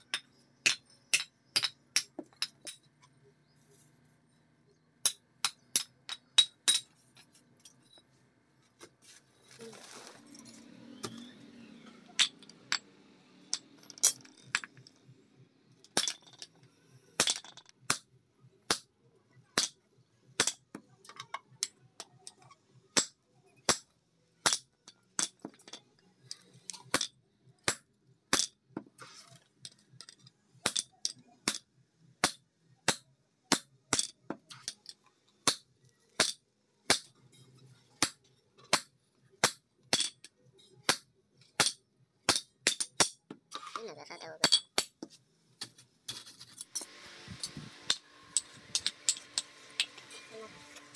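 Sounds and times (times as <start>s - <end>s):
hammer striking chisel on anvil: 46.8s - 50.9s.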